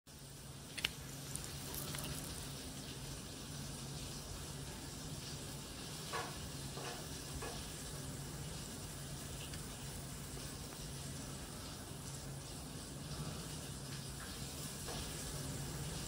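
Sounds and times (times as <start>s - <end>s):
low steady hum: 0.1s - 16.0s.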